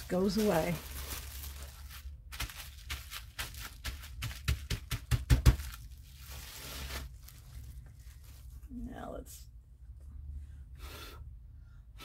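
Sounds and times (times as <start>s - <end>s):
bubble wrap crinkling: 0.0s - 9.0s.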